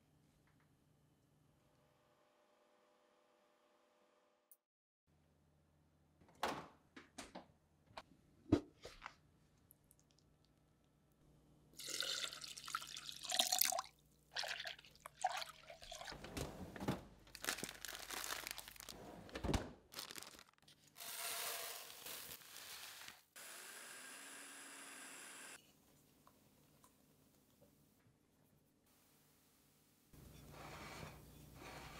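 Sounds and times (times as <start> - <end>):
water pouring into glass bowl: 11.8 - 16.2
freezer drawer opening: 16.2 - 17.2, 19.0 - 19.8
blender grinding grain: 21.0 - 25.6.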